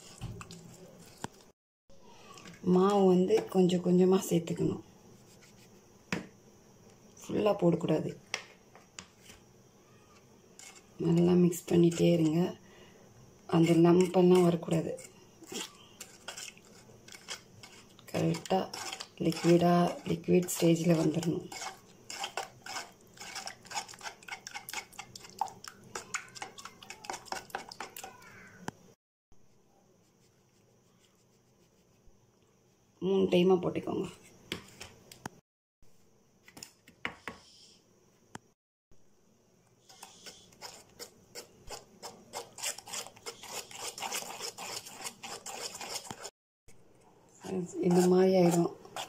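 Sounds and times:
metal spoon stirring batter in bowl: 0.0s - 1.5s, 10.6s - 12.6s, 13.5s - 28.3s, 39.8s - 46.3s, 47.4s - 49.0s.

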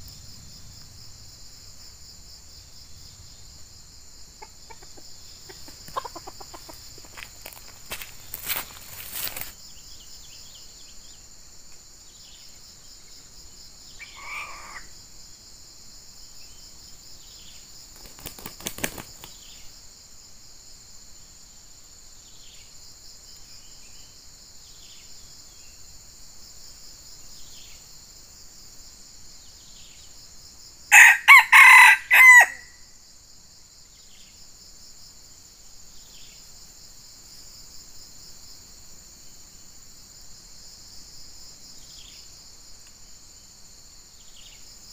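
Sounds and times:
insects droning: 0.0s - 44.9s
rooster crowing: 30.9s - 32.8s.

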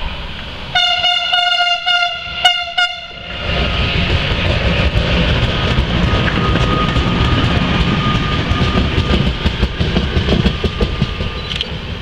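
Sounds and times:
locomotive rumble and wheel noise: 0.0s - 12.0s
locomotive horn toots: 0.7s - 3.4s.

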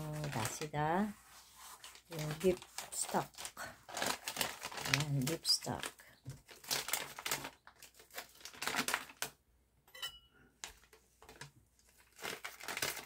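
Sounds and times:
plastic packaging crinkling: 0.0s - 9.4s, 10.6s - 13.0s
faint clink: 9.9s - 10.4s.

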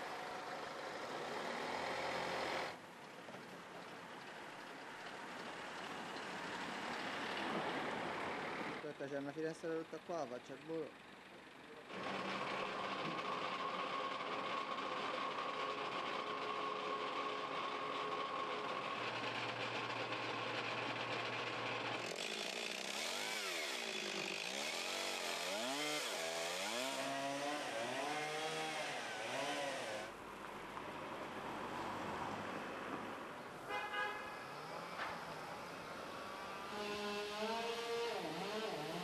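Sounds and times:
chainsaw revving: 0.7s - 2.8s, 11.9s - 30.2s, 36.3s - 39.0s.

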